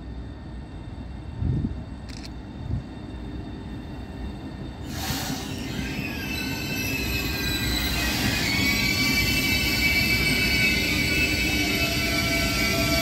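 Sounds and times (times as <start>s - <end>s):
train air rush: 0.0s - 13.0s
train brake and wheel squeal: 2.6s - 13.0s.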